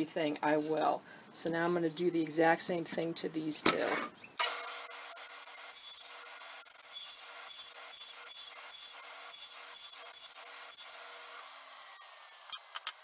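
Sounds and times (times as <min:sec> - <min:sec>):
saw blade cutting wood: 0:04.4 - 0:12.9
table saw motor hum: 0:04.4 - 0:13.0.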